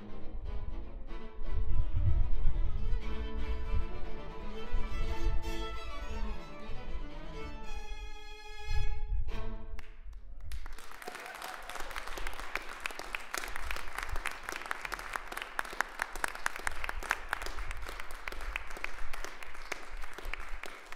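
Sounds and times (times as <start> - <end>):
audience applause: 10.4 - 20.9.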